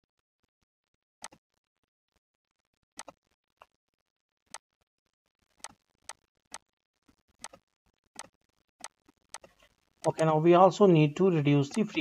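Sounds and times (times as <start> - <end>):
computer mouse clicking: 5.6 - 6.6, 7.4 - 7.6.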